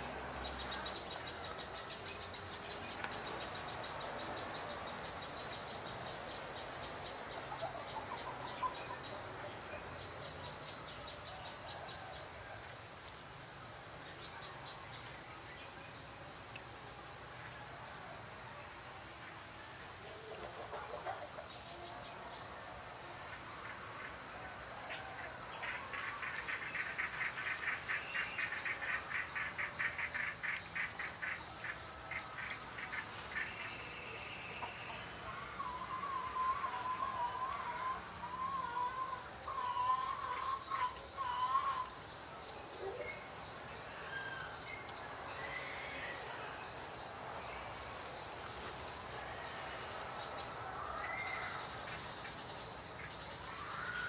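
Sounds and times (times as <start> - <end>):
insects buzzing: 0.0 - 54.0
bird wavering call: 34.5 - 41.8.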